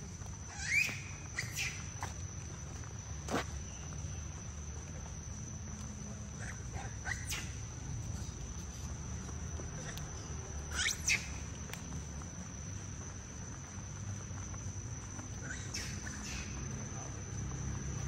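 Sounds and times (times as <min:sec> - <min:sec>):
insect high-pitched drone: 0:00.0 - 0:18.0.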